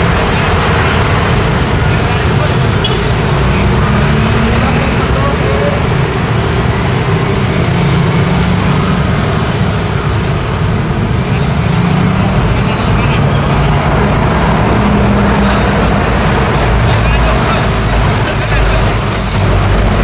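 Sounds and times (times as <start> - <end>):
road noise hum: 0.0 - 20.0
scooters and cars passing: 0.0 - 20.0.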